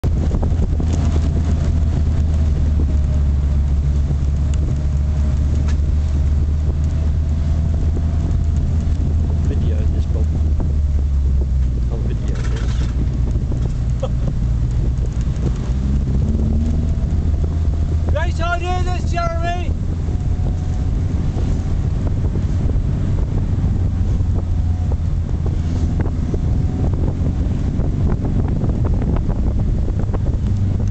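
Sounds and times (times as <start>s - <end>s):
car engine and tyre rumble: 0.0s - 30.9s
wind buffeting microphone: 0.0s - 30.9s
light ticks: 3.6s - 10.4s, 11.6s - 17.4s, 30.4s - 30.9s.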